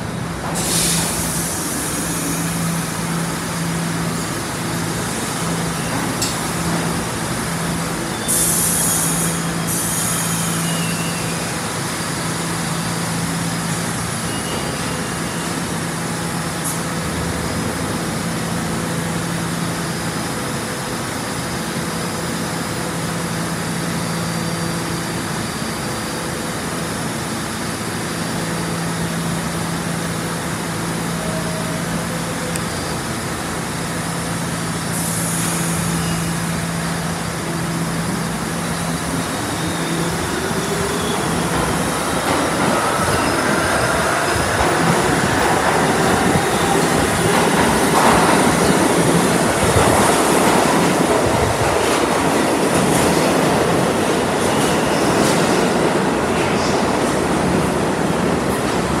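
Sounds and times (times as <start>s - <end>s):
subway car equipment humming: 0.0s - 59.0s
train rolling on track: 0.0s - 59.0s
air hiss: 0.6s - 2.8s, 8.3s - 11.0s.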